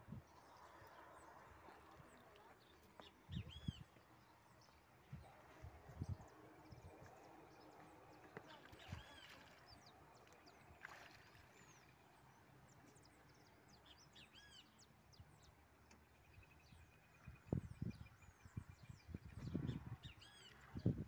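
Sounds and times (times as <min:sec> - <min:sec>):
birds chirping: 0:00.1 - 0:21.0
fish splashing in water: 0:08.7 - 0:12.0.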